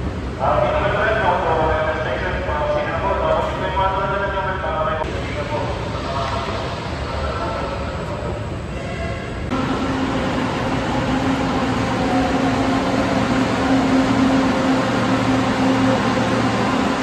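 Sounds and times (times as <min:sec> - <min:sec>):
station noise: 0:00.4 - 0:17.0
train wheels rumbling: 0:05.0 - 0:17.0
train motor hum: 0:09.4 - 0:17.0.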